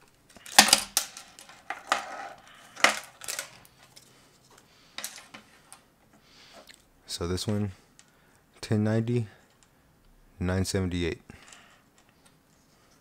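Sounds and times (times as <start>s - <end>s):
plastic case clicking and clattering: 0.3s - 2.1s, 2.8s - 3.7s.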